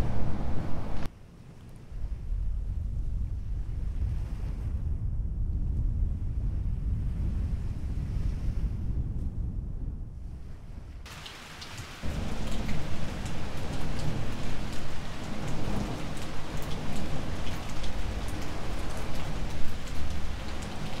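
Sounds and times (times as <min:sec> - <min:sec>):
heavy low rumbling: 0:00.0 - 0:01.1, 0:01.9 - 0:11.0, 0:12.0 - 0:21.0
wind: 0:00.0 - 0:21.0
rain hissing: 0:11.1 - 0:21.0.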